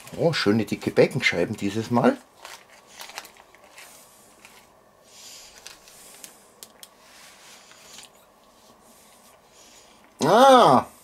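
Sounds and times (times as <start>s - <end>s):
gloved hands rustling: 2.2s - 9.4s.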